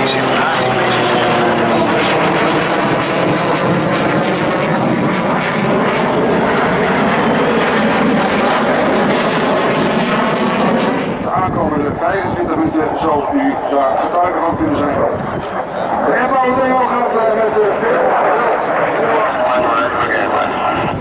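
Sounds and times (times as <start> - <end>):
jet fighter flying overhead: 0.0 - 21.0.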